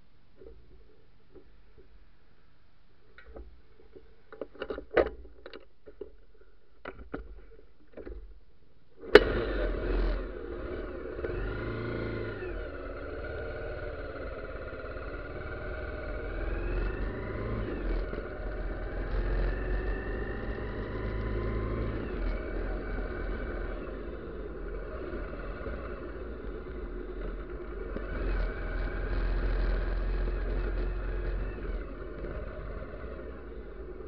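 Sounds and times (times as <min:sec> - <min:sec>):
road and wind noise: 0:09.1 - 0:34.0
motorcycle engine running: 0:09.2 - 0:34.0.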